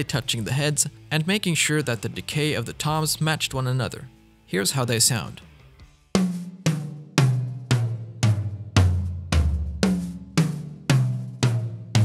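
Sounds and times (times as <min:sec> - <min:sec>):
tom-toms struck: 0:06.2 - 0:12.0.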